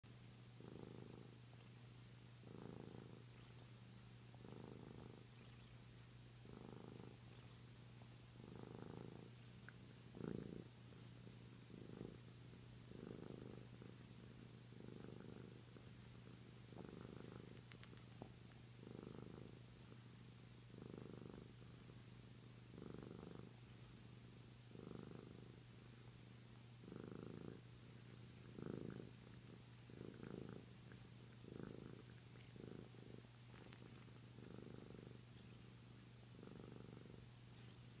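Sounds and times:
cat purring softly: 0.1s - 38.0s
cat sucking its tail: 6.5s - 19.4s, 27.4s - 38.0s.

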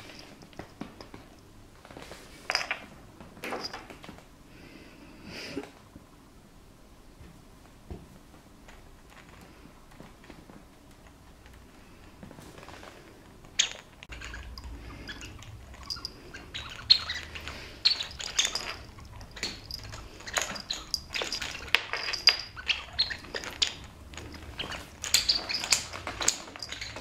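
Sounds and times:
collar tag jingling: 14.1s - 27.0s.

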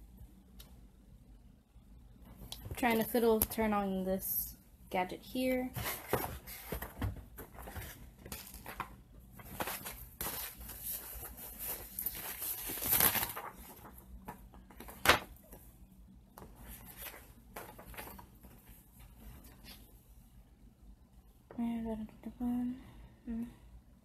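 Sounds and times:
paper rustling: 5.8s - 15.4s, 16.4s - 19.8s.

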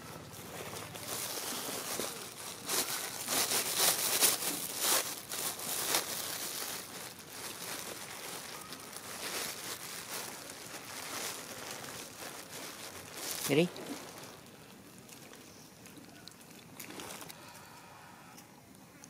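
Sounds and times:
crinkly rustling: 0.0s - 17.7s.

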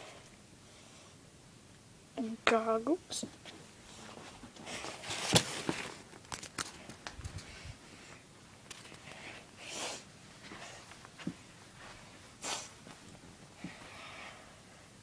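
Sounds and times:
fabric rustling and crinkling: 3.5s - 7.7s.

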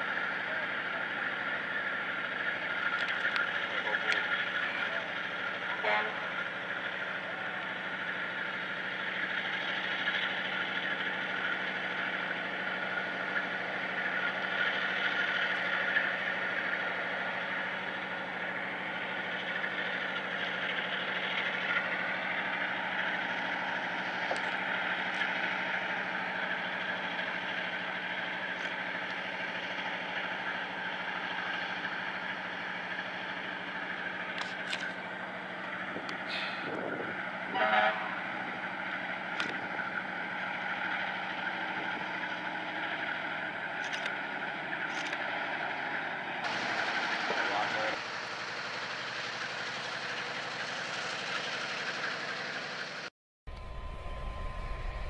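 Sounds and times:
diesel locomotive engine roaring: 0.0s - 55.0s
low hum: 53.5s - 55.0s.

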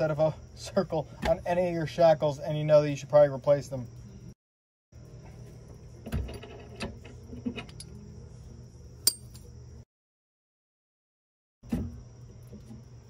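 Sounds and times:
insects chirring: 0.0s - 4.4s, 5.0s - 9.8s, 11.9s - 13.0s
sharp metallic clink: 9.0s - 9.5s.

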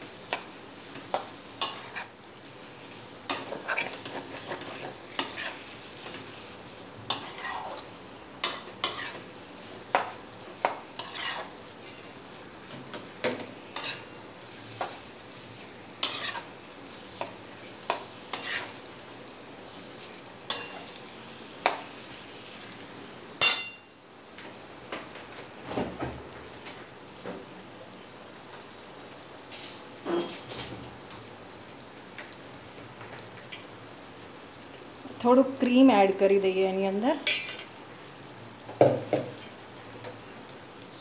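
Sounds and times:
faint sizzling: 0.0s - 41.0s
spoon scraping metal pan: 1.1s - 2.1s, 3.3s - 6.2s, 7.1s - 9.3s, 9.9s - 12.0s, 13.8s - 14.1s, 16.0s - 16.5s, 17.2s - 18.8s, 20.5s - 20.9s.

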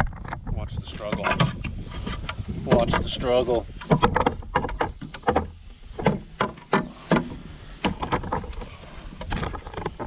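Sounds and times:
fish flopping on plastic board: 3.8s - 10.0s.

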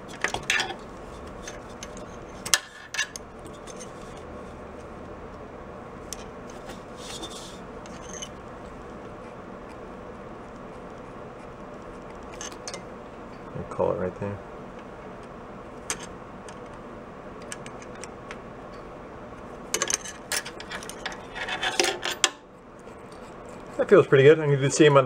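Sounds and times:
low background hum: 0.0s - 25.0s
metallic scrape: 0.4s - 4.6s, 6.2s - 8.4s, 19.8s - 22.3s.

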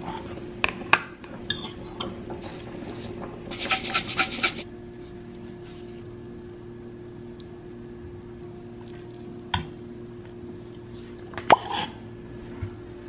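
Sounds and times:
steady low hum: 2.5s - 11.2s
sauce scraped from glass container: 3.5s - 4.6s.

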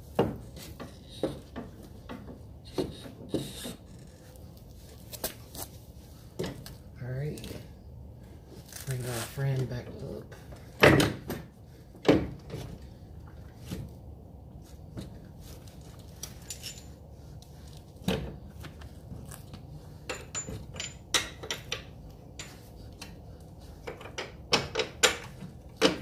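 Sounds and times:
metallic clinks and knocks: 16.2s - 17.0s, 20.0s - 22.7s.

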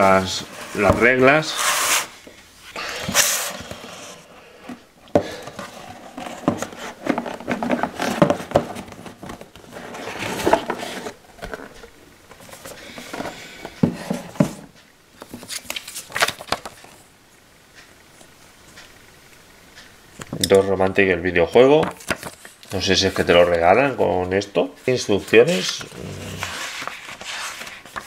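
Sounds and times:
paper leaflets rustling: 0.0s - 2.2s, 15.2s - 17.0s, 21.8s - 28.0s
cardboard box handling: 5.3s - 14.6s.

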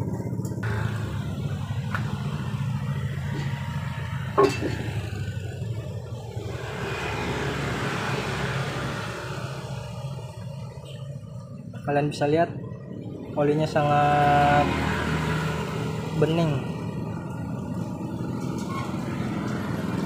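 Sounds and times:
low engine hum: 0.0s - 20.0s.

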